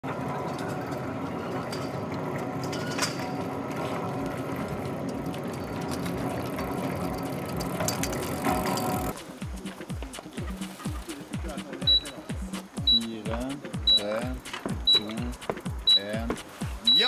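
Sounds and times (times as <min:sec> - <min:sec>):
bike hub ratchet buzzing: 0:02.6 - 0:09.7.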